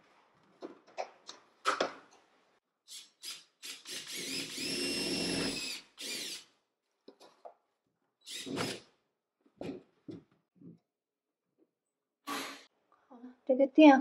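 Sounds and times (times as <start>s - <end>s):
cordless drill motor whine: 3.9s - 6.4s.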